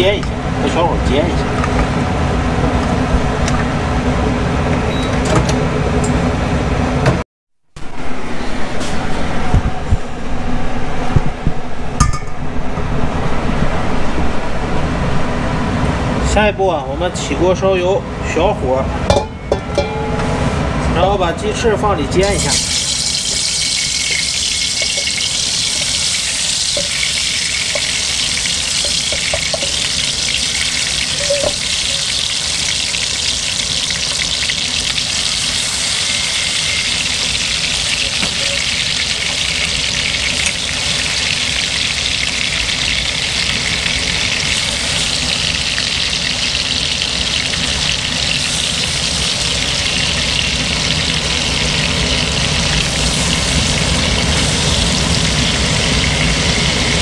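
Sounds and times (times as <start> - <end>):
chicken wings sizzling in oil: 22.3 - 57.0.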